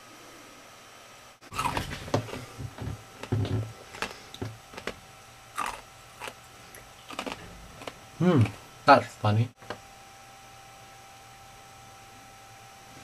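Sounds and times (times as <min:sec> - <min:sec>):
ice cubes being chewed: 0:01.5 - 0:05.0, 0:05.6 - 0:08.6.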